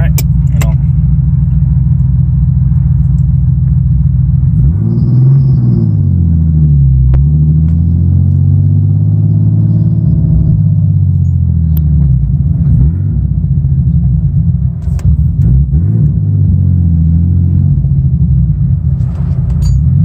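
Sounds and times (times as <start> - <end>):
car engine droning in cabin: 0.0 - 20.0.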